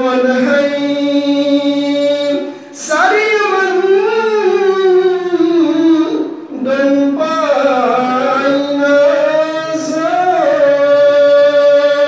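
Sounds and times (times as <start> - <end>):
man singing into microphone: 0.0 - 12.0.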